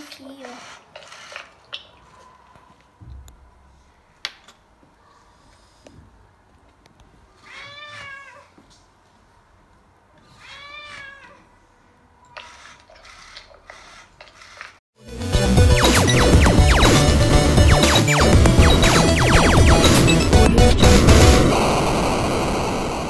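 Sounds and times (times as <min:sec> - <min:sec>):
recorded cat meows from speaker: 0:07.4 - 0:08.5, 0:10.2 - 0:11.5.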